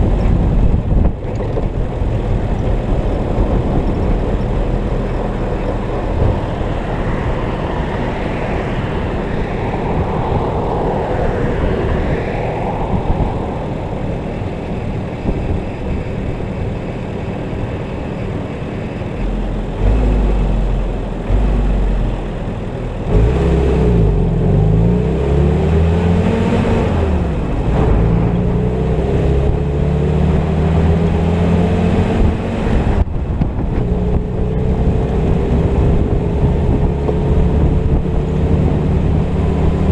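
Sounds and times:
jeep engine idling and revving: 0.0 - 39.9.

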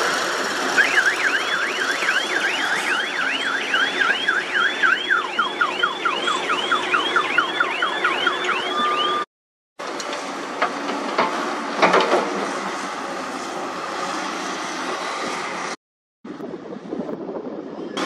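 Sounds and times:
electronic siren alarm: 0.6 - 9.3.

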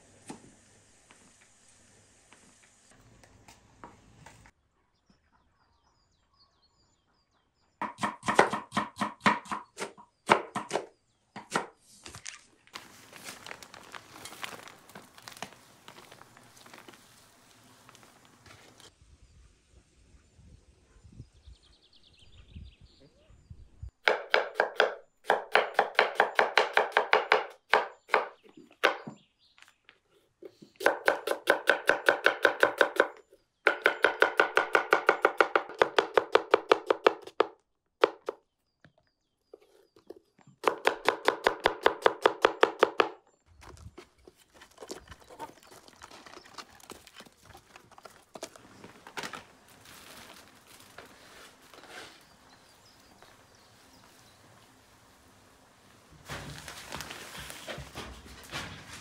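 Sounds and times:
knife chopping vegetables: 7.8 - 11.8, 24.1 - 29.0, 30.4 - 38.4.

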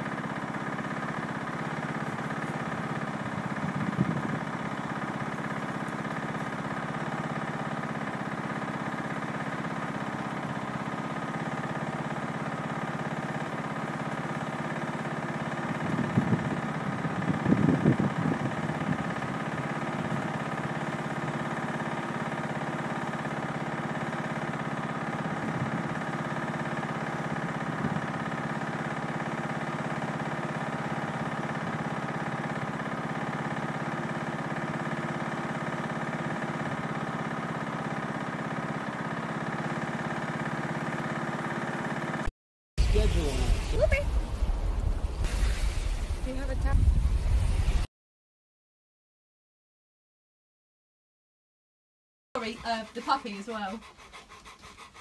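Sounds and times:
engine-like hum: 0.0 - 47.9, 52.4 - 55.0
rough burst: 42.8 - 47.9.

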